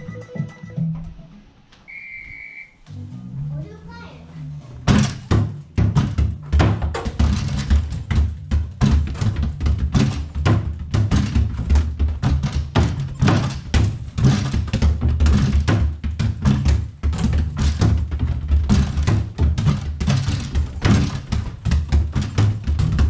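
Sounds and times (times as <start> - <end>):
mini basketballs thudding: 4.8 - 23.0.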